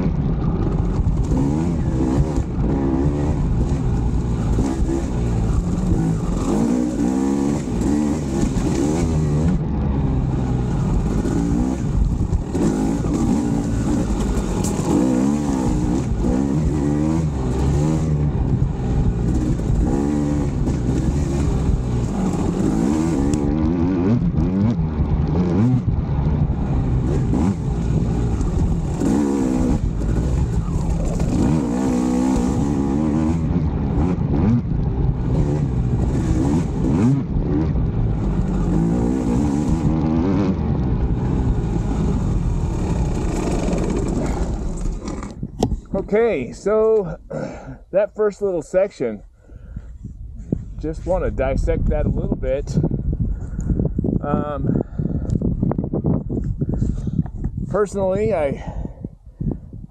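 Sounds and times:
dirt bike engine revving: 0.0 - 45.4.

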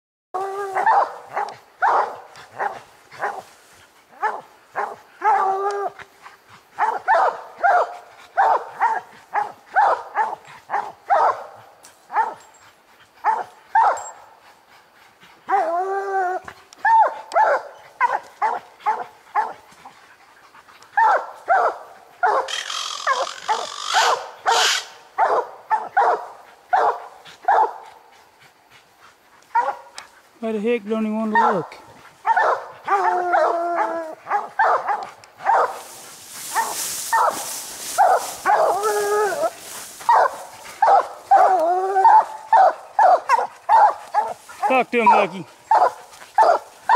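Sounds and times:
dog long drawn-out bawls: 22.2 - 25.0, 32.2 - 37.3, 38.0 - 45.4
dogs chop barking: 40.0 - 46.9.

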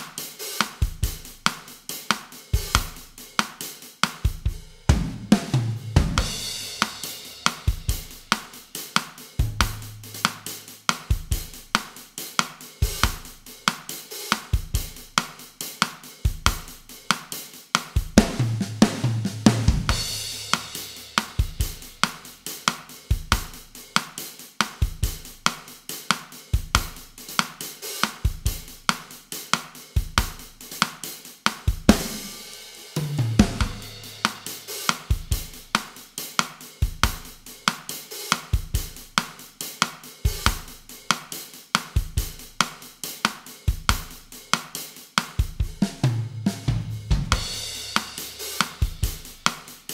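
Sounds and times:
drum kit playing a groove: 0.0 - 49.9
cymbal crash: 6.2 - 8.4, 9.4 - 10.8.

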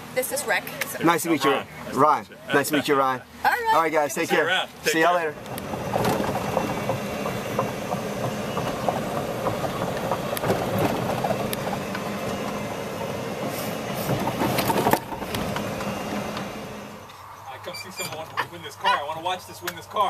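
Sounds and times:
golf cart motor hum: 1.0 - 17.1
clicks and knocks from cart: 5.5 - 12.7, 14.0 - 16.4.

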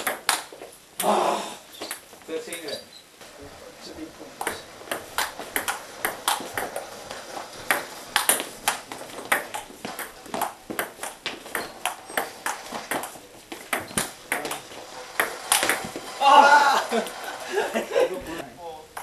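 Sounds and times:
ping-pong ball clicking off paddles: 0.0 - 1.1, 1.8 - 2.8, 4.4 - 16.2.

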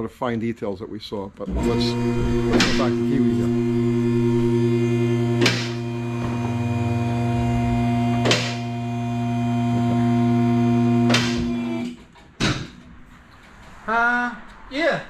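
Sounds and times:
hydraulic pump motor humming: 1.5 - 12.0.

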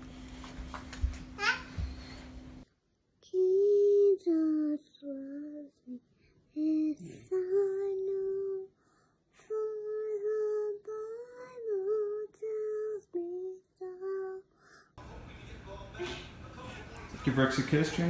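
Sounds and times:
girl singing slowly: 3.2 - 14.8.

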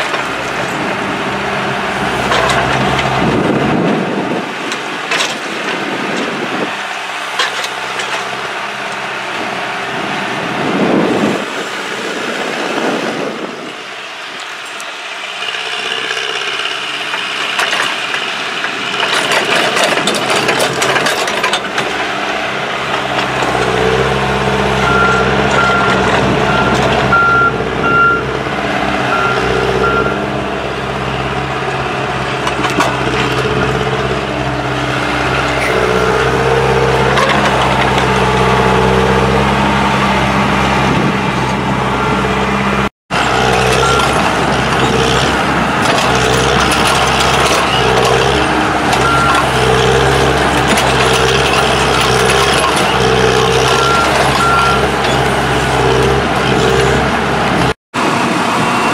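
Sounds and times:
diesel engine running: 0.0 - 58.9.

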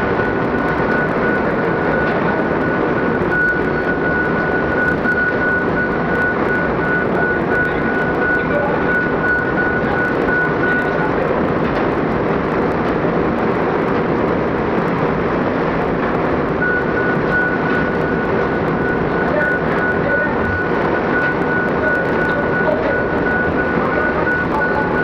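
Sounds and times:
heavy crane engine running: 0.0 - 25.0
high-pitched warning beeper: 0.1 - 11.2, 16.6 - 25.0.

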